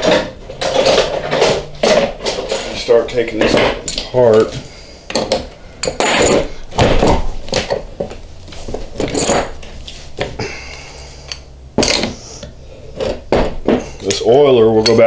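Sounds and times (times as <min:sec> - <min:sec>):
metal tools clinking on workbench: 0:14.0 - 0:15.0.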